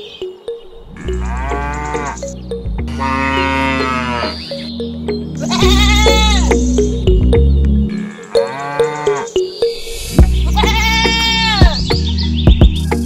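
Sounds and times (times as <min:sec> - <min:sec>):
sheep bleating: 0:01.0 - 0:02.2, 0:02.9 - 0:04.4, 0:05.4 - 0:06.6, 0:10.4 - 0:11.8
music with beat and bass: 0:02.0 - 0:03.5, 0:04.3 - 0:07.9, 0:09.3 - 0:13.0.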